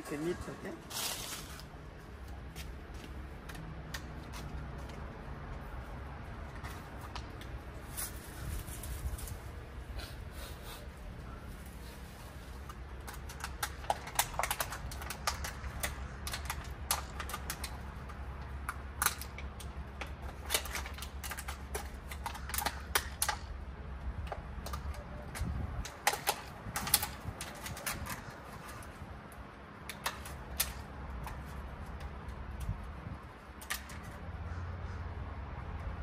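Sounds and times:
branch clicking and snapping: 12.6s - 23.6s.

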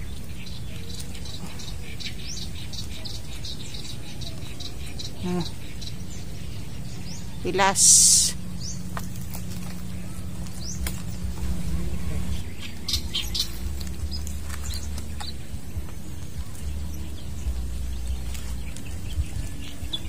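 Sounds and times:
faint bird chirps: 0.0s - 7.6s
low steady rumble: 0.0s - 20.0s.

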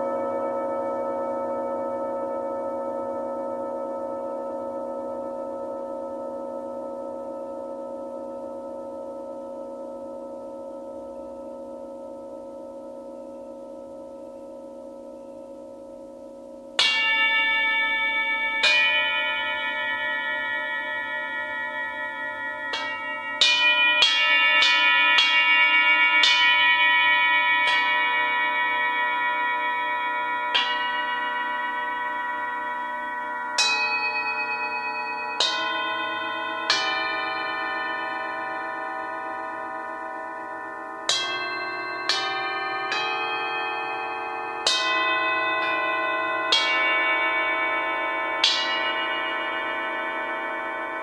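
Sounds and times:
singing bowls ringing: 0.0s - 51.0s
mallet striking bowl: 21.0s - 25.4s, 32.7s - 47.2s.

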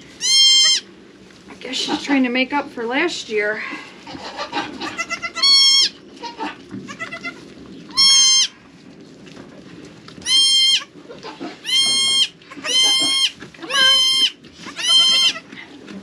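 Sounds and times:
goat kids bleating: 0.2s - 0.8s, 4.1s - 8.5s, 10.2s - 15.6s.

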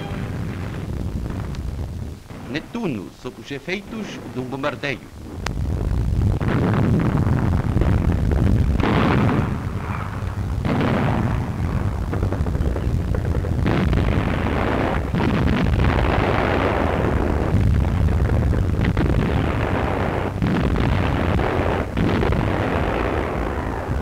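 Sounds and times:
artillery blasts: 0.0s - 24.0s
artillery rumble: 0.0s - 24.0s.

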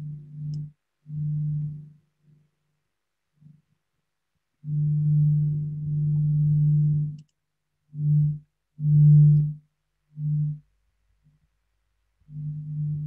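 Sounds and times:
electrical mains buzz: 12.3s - 13.0s.

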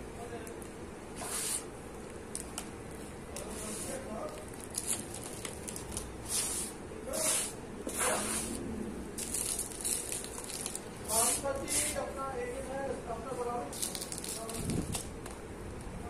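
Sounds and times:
hand sweeping gritty powder: 1.2s - 1.7s, 3.4s - 4.1s, 6.2s - 8.7s, 11.1s - 12.7s.

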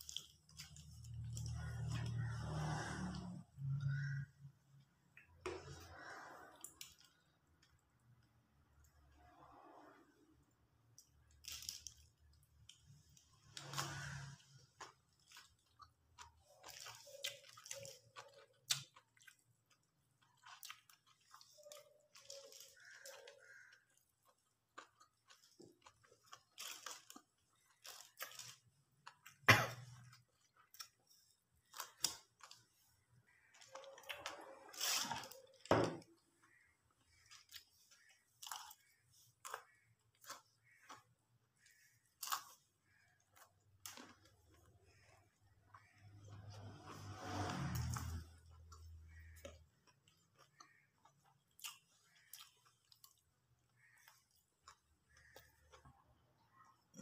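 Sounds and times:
hand mixing rice on crinkly wrap: 0.0s - 3.0s, 15.9s - 29.0s, 36.5s - 56.7s
chewing: 0.0s - 4.1s, 11.0s - 57.0s.

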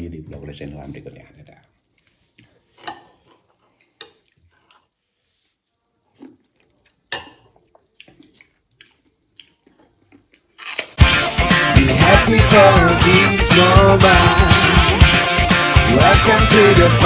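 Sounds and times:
chewing: 1.8s - 11.0s.

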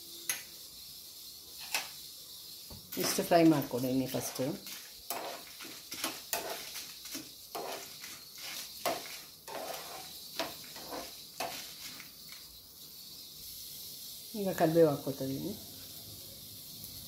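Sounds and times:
oil sizzling: 0.0s - 17.0s
spoon scraping frying pan: 1.6s - 2.0s, 2.9s - 12.4s.

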